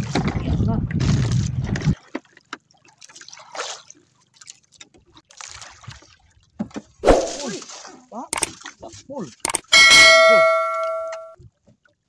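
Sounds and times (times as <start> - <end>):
water sloshing against boat hull: 0.0 - 9.5
water splash: 7.0 - 8.8.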